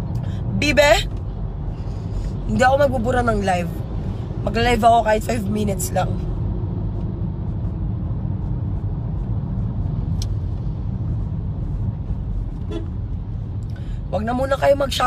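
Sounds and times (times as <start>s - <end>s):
low rumble of vehicle noise: 0.0s - 15.0s.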